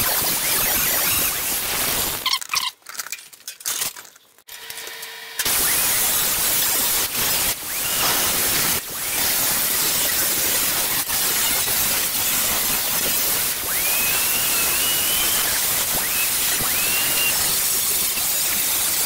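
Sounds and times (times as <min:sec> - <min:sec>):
angle grinder cutting sheet steel: 0:04.6 - 0:19.0.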